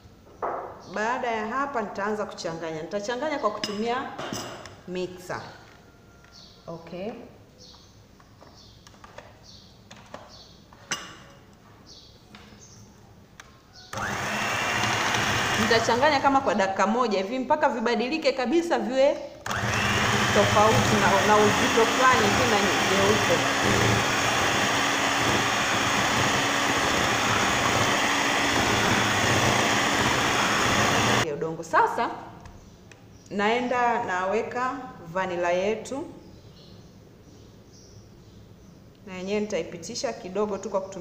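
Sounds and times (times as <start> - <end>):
faint high chirp: 13.6 - 14.0
electric hand mixer whisking: 13.9 - 16.3, 19.5 - 31.2.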